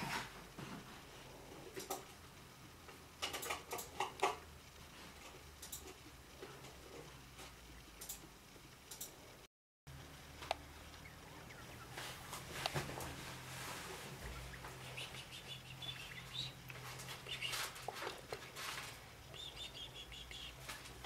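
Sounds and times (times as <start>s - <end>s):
degus squeaking: 10.8s - 13.0s, 13.8s - 21.0s
rustling bedding: 11.9s - 15.4s.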